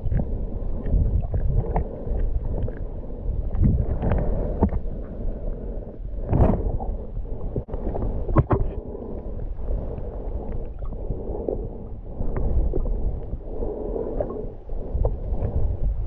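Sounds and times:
small clicks underwater: 0.0 - 2.9, 7.6 - 9.3
muffled underwater water rush: 0.0 - 16.0.

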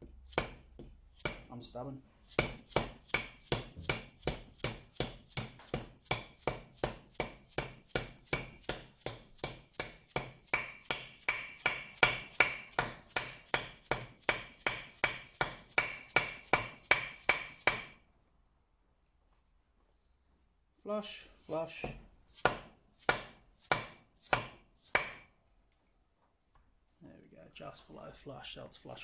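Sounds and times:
hammer tapping on metal: 9.8 - 18.0.

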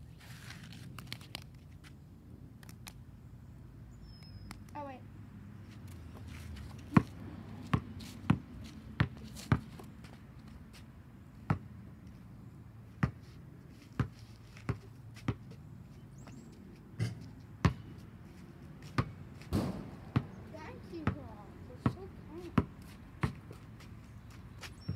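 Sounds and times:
basketball bouncing on asphalt: 5.8 - 18.1, 18.8 - 24.9.

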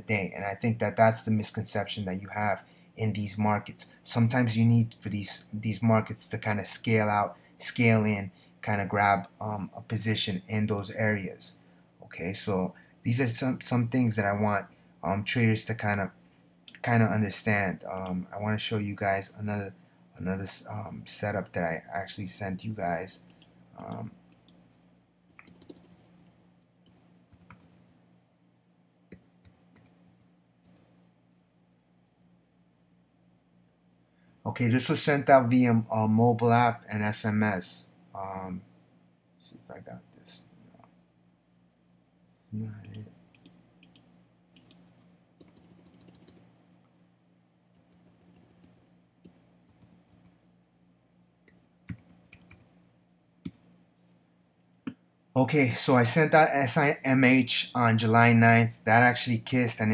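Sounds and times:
faint low hum: 0.0 - 59.9
computer keyboard typing: 23.3 - 24.6, 25.3 - 27.8, 29.1 - 30.0, 42.8 - 44.8, 45.4 - 46.5, 47.8 - 50.3, 51.4 - 52.7.

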